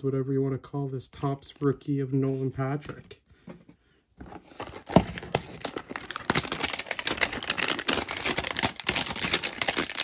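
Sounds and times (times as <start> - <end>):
plastic wrapping crinkling: 4.6 - 10.0.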